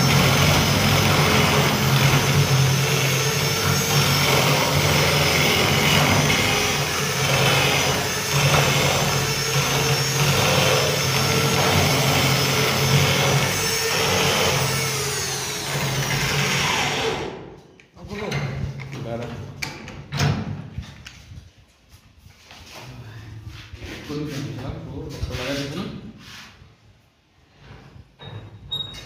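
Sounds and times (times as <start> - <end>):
electric drill cutting wood: 0.0 - 17.4.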